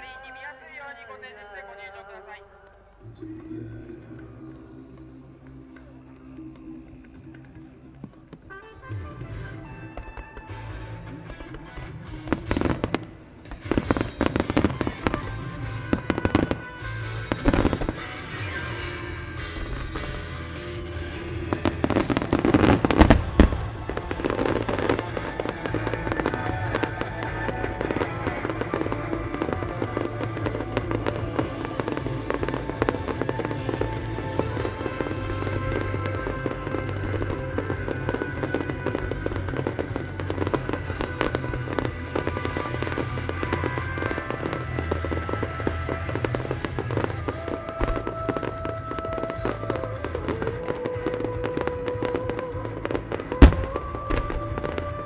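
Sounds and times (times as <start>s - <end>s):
music: 0.0s - 55.0s
dense crackling: 1.9s - 55.0s.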